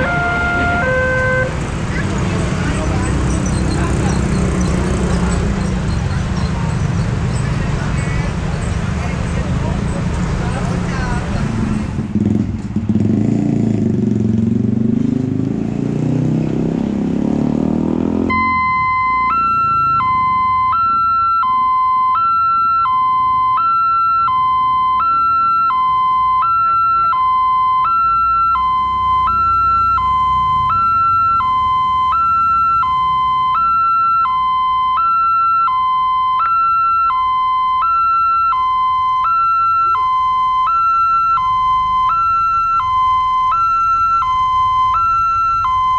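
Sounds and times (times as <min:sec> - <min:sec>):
road traffic: 0:00.0 - 0:45.9
level crossing alarm two-tone: 0:18.3 - 0:45.9.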